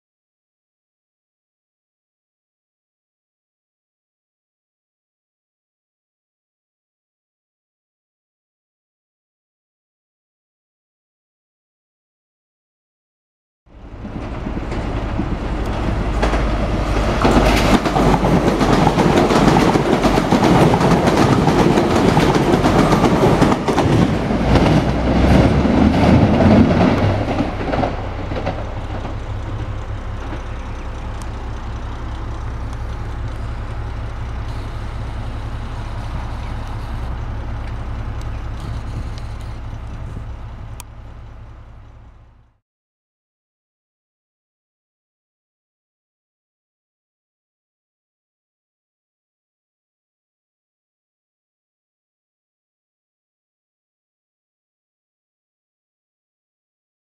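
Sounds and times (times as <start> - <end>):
diesel train engine running: 13.7 - 42.6
train wheels clattering: 14.0 - 40.6.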